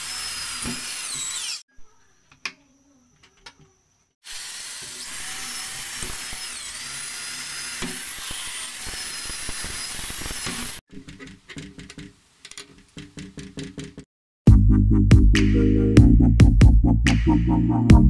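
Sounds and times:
electric drill whining: 0:00.0 - 0:01.7, 0:04.3 - 0:10.8.

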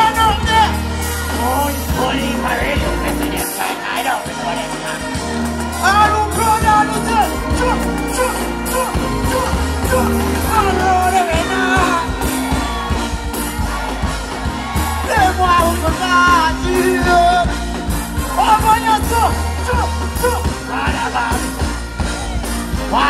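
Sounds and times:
person singing into microphone: 0:00.0 - 0:17.7
heavy bass line: 0:00.0 - 0:23.0.

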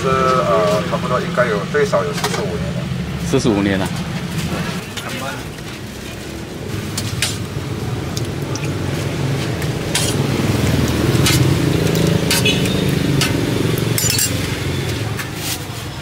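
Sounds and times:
metal spoon clinking on pots: 0:11.1 - 0:15.0.

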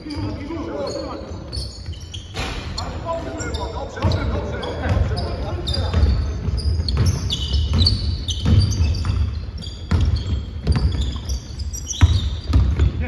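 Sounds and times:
sneakers squeaking on floor: 0:00.0 - 0:13.0
basketball bouncing on wooden floor: 0:03.9 - 0:13.0.

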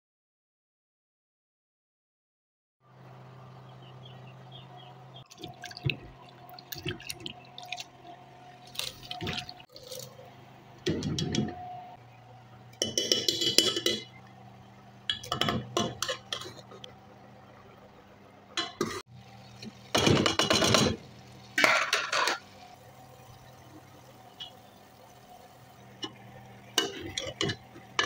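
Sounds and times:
metal spoon scraping metal pot: 0:12.8 - 0:14.2, 0:15.1 - 0:16.9.

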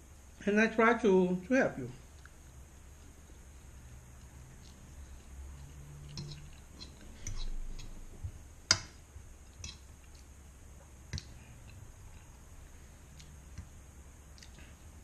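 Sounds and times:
fork scraping a frying pan: 0:06.0 - 0:08.1.

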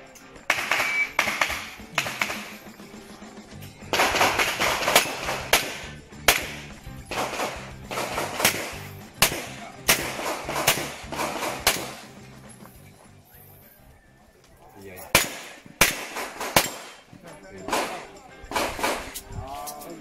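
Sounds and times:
background music: 0:00.0 - 0:20.0
pistol shots: 0:00.5 - 0:02.6, 0:03.9 - 0:12.1, 0:15.1 - 0:19.2.

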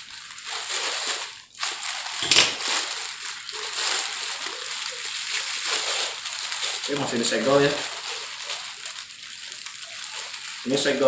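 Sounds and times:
plastic bag crinkling and tearing: 0:00.0 - 0:11.0.

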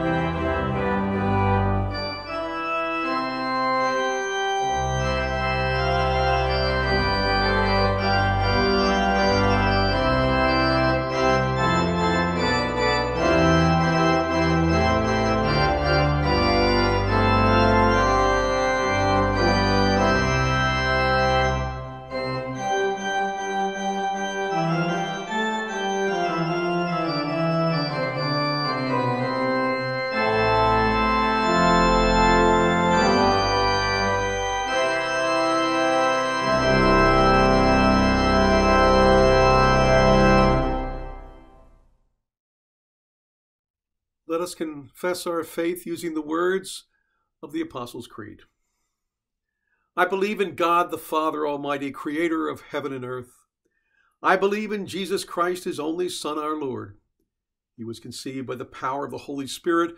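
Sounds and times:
deep organ bass line: 0:00.0 - 0:41.6
church organ chords: 0:00.0 - 0:41.8.

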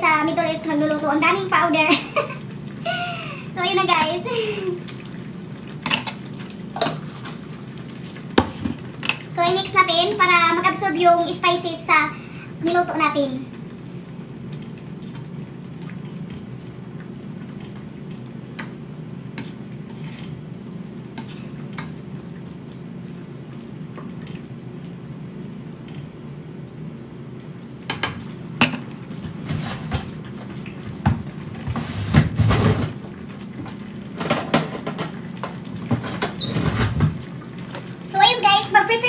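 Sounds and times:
kitchenware clattering: 0:03.8 - 0:04.3, 0:05.8 - 0:07.1
utensils scraping a frying pan: 0:19.9 - 0:20.4.

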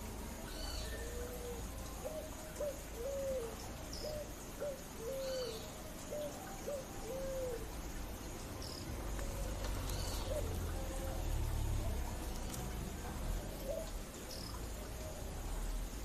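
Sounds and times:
pigeon cooing: 0:00.6 - 0:07.7, 0:09.2 - 0:11.3, 0:13.3 - 0:14.0.

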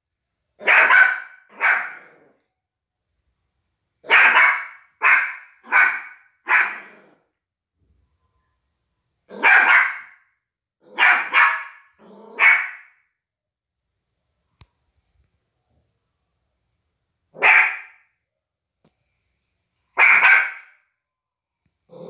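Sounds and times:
small dog barking: 0:00.6 - 0:02.3, 0:04.0 - 0:07.2, 0:09.3 - 0:10.2, 0:10.8 - 0:13.0, 0:17.4 - 0:18.1, 0:20.0 - 0:20.8.

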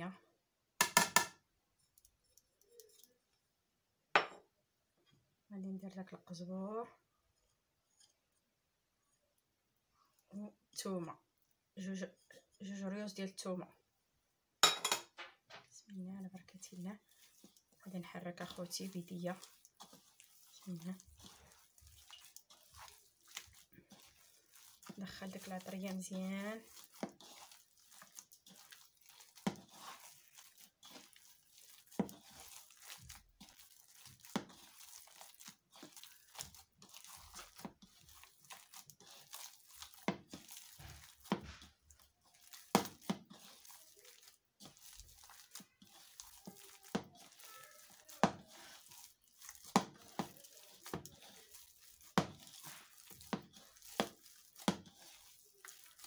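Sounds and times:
wet squishing of kneaded potato: 0:15.9 - 0:56.0.

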